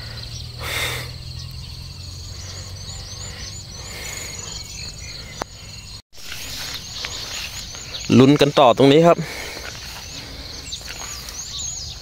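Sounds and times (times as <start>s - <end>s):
birds chirping: 0.0s - 12.0s
insects chirping: 0.0s - 12.0s.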